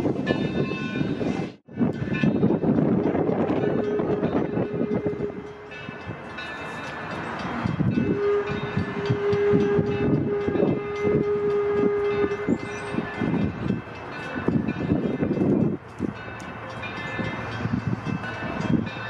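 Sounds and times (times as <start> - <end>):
steam locomotive whistle: 3.3 - 13.7.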